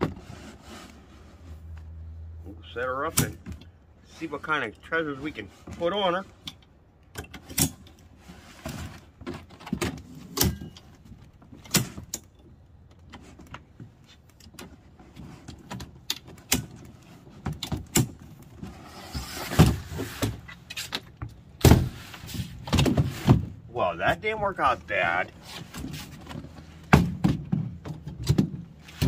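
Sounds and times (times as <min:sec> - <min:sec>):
table rustling and scraping: 0:00.0 - 0:02.0, 0:08.2 - 0:10.6, 0:18.5 - 0:20.9.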